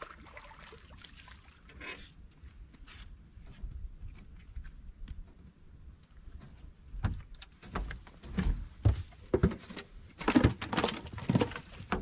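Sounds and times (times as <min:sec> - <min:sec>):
irregular knocks and thumps: 0:06.3 - 0:12.0.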